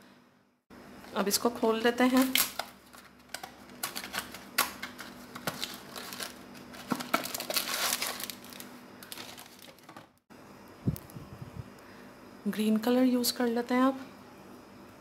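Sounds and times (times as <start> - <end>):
packaging crinkling and rustling: 2.0 - 10.2.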